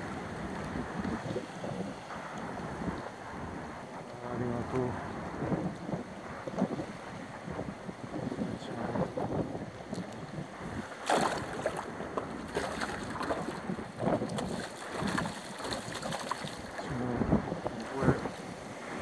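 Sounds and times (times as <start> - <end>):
wind buffeting microphone: 0.0 - 19.0
seawater sloshing and splashing: 10.6 - 17.0.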